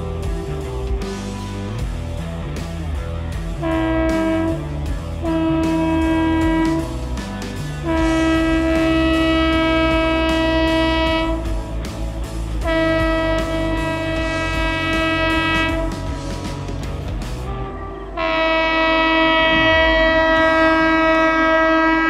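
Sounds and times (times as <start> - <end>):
train rumbling: 0.0 - 22.0
locomotive horn blasts: 3.6 - 7.2, 7.8 - 11.7, 12.6 - 16.5, 17.5 - 22.0.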